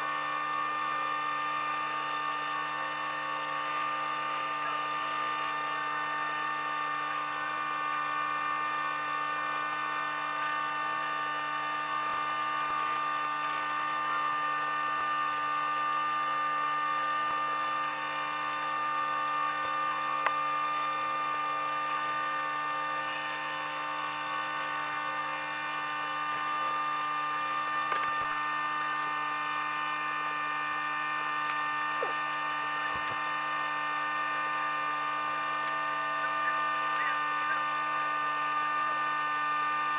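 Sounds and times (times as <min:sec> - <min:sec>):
boat engine humming: 0:30.7 - 0:38.0.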